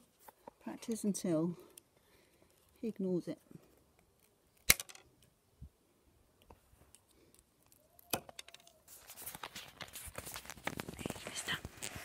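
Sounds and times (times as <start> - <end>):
handling rustle: 8.4 - 12.0.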